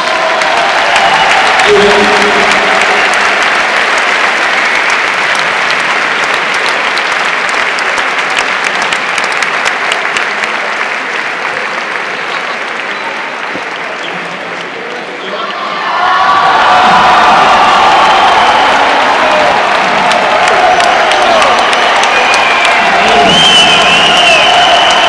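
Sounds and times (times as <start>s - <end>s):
audience applauding: 0.0s - 25.0s.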